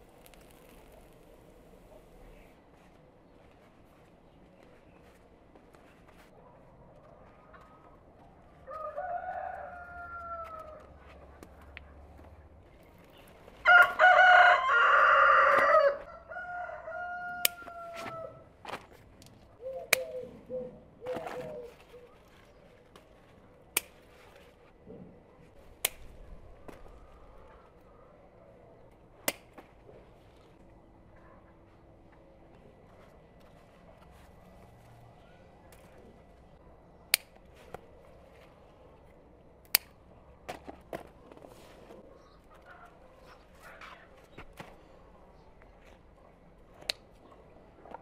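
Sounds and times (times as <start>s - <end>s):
sharp clicks and snaps: 25.8s - 26.2s, 37.1s - 37.4s, 39.6s - 40.0s.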